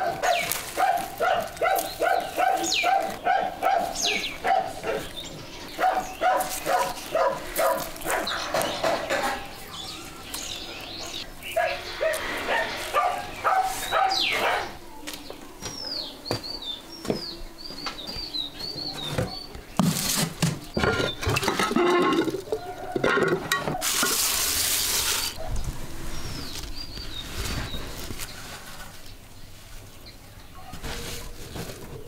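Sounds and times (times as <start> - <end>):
small bird chirping: 1.6 - 19.7
ceramic jar lid clattering: 20.8 - 24.2
loud hiss: 23.7 - 25.4.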